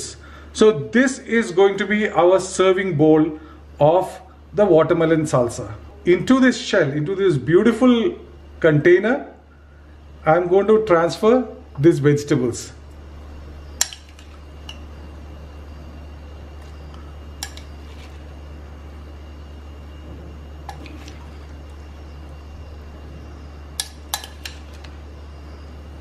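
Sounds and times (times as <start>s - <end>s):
low hum: 12.6s - 26.0s
metal spoon clinking glass bowl: 17.4s - 18.2s, 23.8s - 25.0s.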